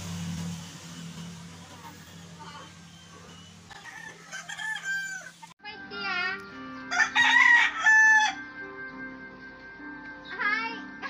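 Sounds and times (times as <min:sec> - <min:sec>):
rooster crowing: 0:01.7 - 0:05.5, 0:06.9 - 0:08.4
background music: 0:02.4 - 0:11.0.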